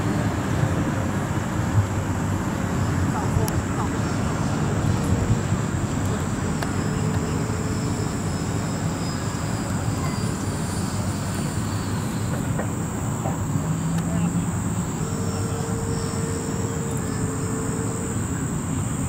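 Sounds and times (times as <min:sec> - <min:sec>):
model jet steady rushing noise: 0:00.0 - 0:19.0
thin high tone: 0:05.8 - 0:19.0.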